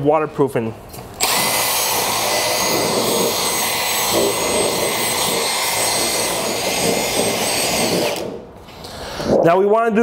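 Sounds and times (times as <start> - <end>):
drill wire brush grinding metal: 1.2 - 8.4.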